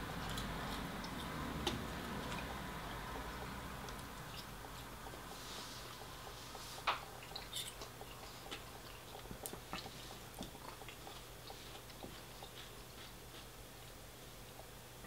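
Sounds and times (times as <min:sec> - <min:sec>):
person chewing: 0:03.2 - 0:13.5.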